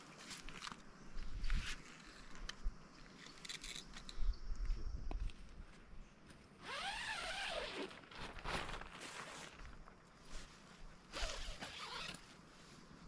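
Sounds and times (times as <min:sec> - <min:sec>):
tent rustling and knocking: 0:06.6 - 0:12.8.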